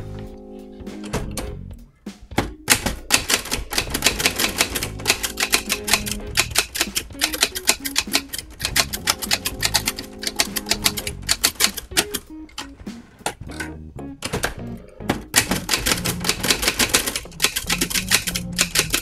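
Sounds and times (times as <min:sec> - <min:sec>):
background music: 0:00.0 - 0:19.0
manual typewriter typing: 0:02.7 - 0:12.7, 0:15.3 - 0:19.0.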